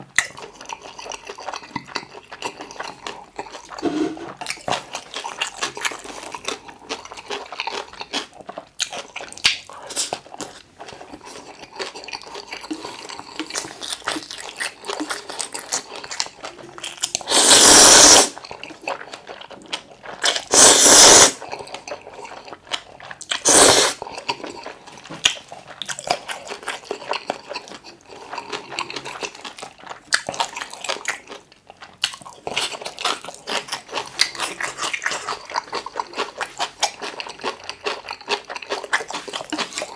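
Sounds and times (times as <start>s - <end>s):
wet chewing and mouth clicks: 0.0s - 39.9s
slurping noodles: 17.2s - 18.4s, 20.2s - 22.3s, 23.3s - 24.7s.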